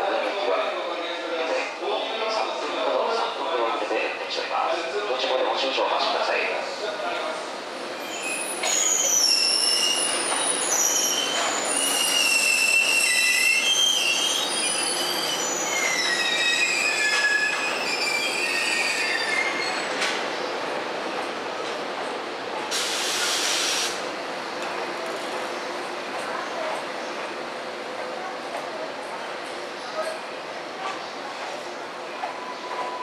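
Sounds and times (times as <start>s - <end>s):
short hiss: 22.7s - 24.0s.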